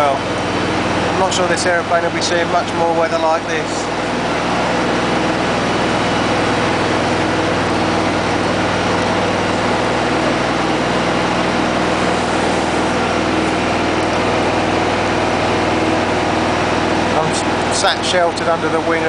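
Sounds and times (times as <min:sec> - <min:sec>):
engine idling hum: 0:00.0 - 0:19.0.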